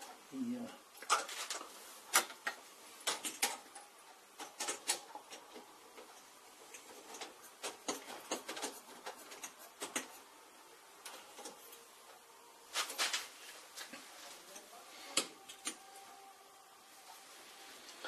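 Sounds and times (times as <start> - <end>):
screwdriver clicking and scratching: 6.7 - 10.2.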